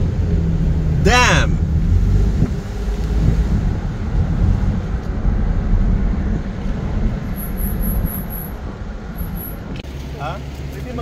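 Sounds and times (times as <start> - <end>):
engine and road rumble in car: 0.0 - 11.0.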